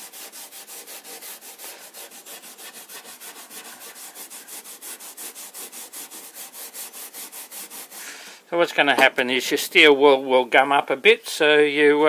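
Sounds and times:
steel wool scrubbing wood: 0.0s - 8.3s.

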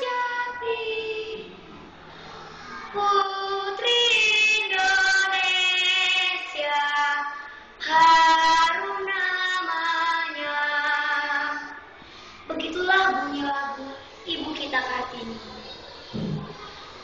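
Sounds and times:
girl singing: 0.0s - 1.6s, 2.8s - 11.8s, 12.5s - 15.4s.

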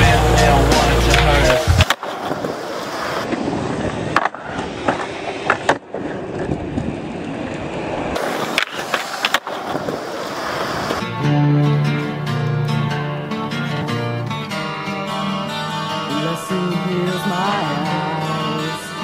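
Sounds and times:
background music: 0.0s - 1.8s
skateboard wheels rolling on concrete: 0.0s - 16.3s
skateboard clacks: 1.0s - 7.6s, 8.2s - 11.0s.

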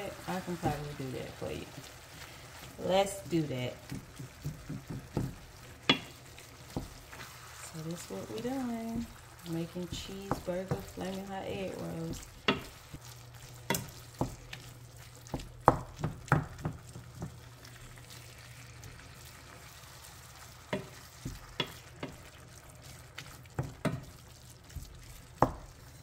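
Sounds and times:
meat sizzling: 0.0s - 26.0s.

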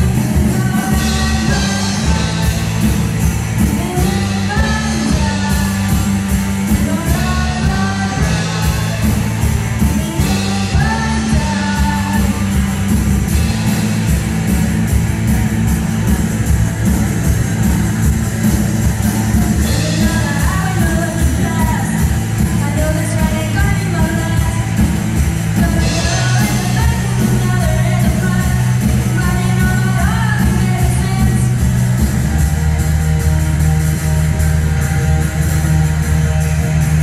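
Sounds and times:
person singing: 0.0s - 13.6s, 19.2s - 31.7s
live rock band playing: 0.0s - 37.0s.

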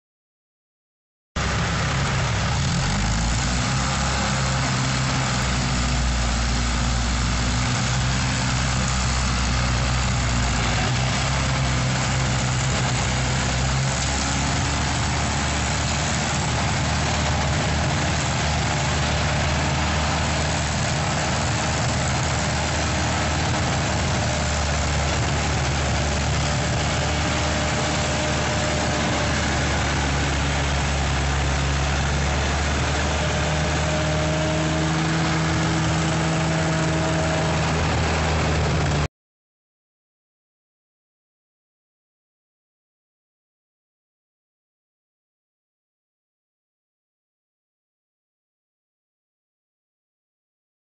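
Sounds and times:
loader engine running: 1.4s - 39.1s.

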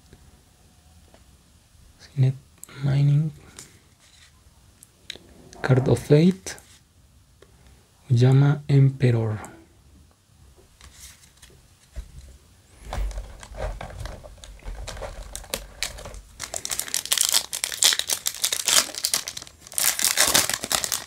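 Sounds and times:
foil wrapper crinkling and tearing: 13.2s - 21.0s.

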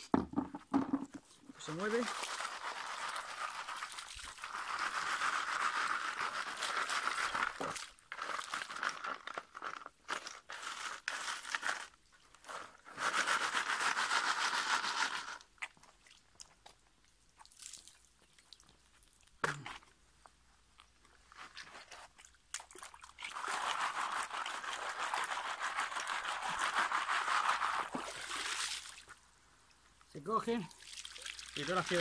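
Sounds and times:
gravel rattling in a sieve: 1.6s - 15.5s, 23.2s - 28.8s, 31.6s - 32.0s
water sloshing and draining: 30.7s - 31.9s.

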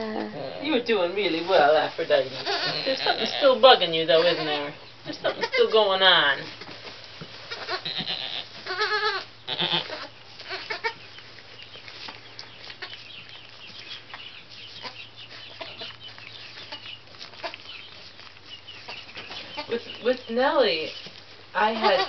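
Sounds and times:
goat bleating: 2.3s - 6.0s, 7.4s - 11.0s, 21.6s - 22.0s
rustling and knocks in straw: 6.2s - 21.9s.

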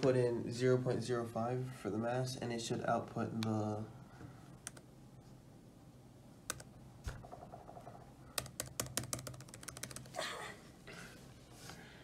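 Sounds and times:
laptop keyboard typing: 4.6s - 4.9s, 6.5s - 10.2s.

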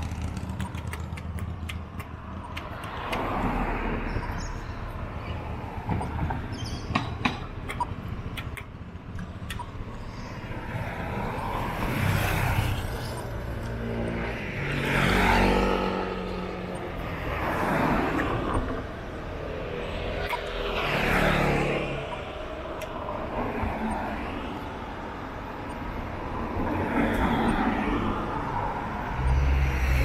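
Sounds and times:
sharp clicks: 0.0s - 3.5s, 6.9s - 10.0s
cars passing: 0.0s - 30.0s.

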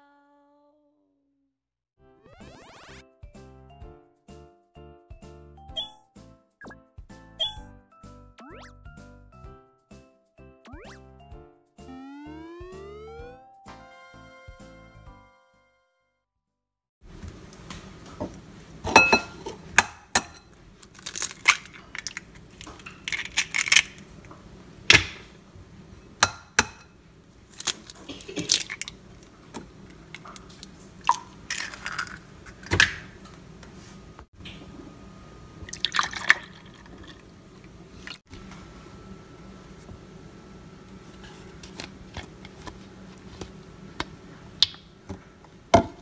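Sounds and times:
eggs cracked against ceramic bowl: 27.6s - 29.0s
milk pouring into bowl: 35.7s - 38.2s.

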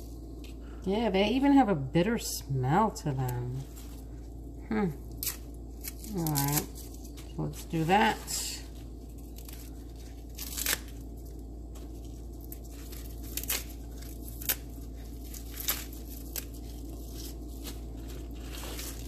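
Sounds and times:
steady low hum: 0.0s - 19.0s
leafy greens tearing: 4.9s - 19.0s.

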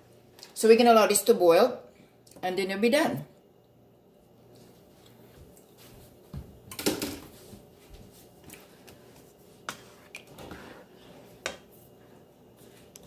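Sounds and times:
spoon stirring chili in skillet: 8.4s - 13.0s.

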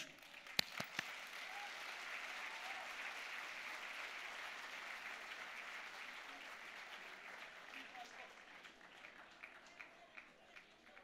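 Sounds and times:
single sharp clap: 0.0s - 1.2s
audience applauding: 0.0s - 11.0s.

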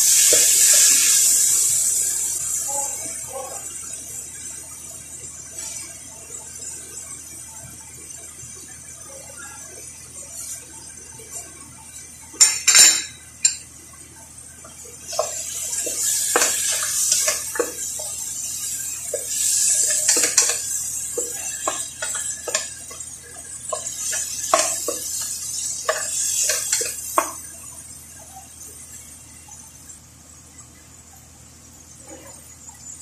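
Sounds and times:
food sizzling: 0.0s - 33.0s
spoon scraping and knocking pot: 15.1s - 18.2s, 19.1s - 23.0s, 23.7s - 27.4s.

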